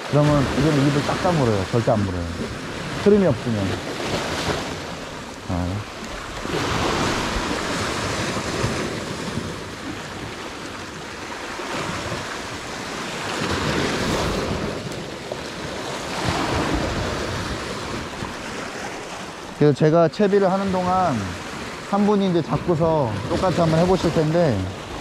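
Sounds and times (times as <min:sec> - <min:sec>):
sea waves washing against rocks: 0:00.0 - 0:25.0
wind on microphone: 0:06.0 - 0:18.8.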